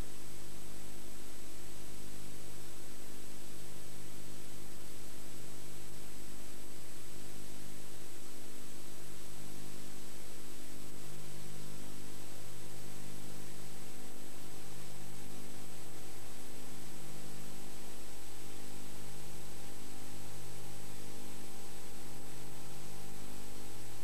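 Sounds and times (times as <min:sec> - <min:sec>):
low mains hum: 0:00.0 - 0:24.0
tape hiss: 0:00.0 - 0:24.0.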